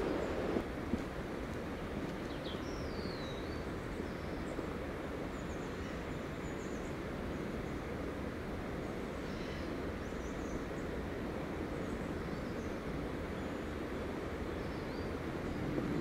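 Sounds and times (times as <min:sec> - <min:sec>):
steady rushing noise: 0:00.0 - 0:02.0, 0:15.1 - 0:16.0
small birds chirping: 0:02.1 - 0:04.6.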